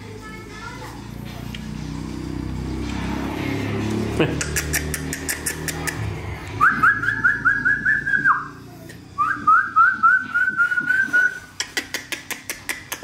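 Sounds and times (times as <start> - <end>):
person whistling rising notes: 6.6 - 8.5, 9.2 - 11.5.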